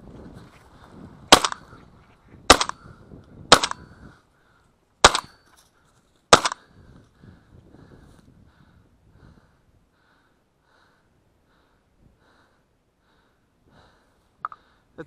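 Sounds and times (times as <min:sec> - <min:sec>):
shotgun shots with echo: 0:01.3 - 0:01.6, 0:02.5 - 0:02.8, 0:03.5 - 0:03.8, 0:05.0 - 0:05.4, 0:06.3 - 0:06.6.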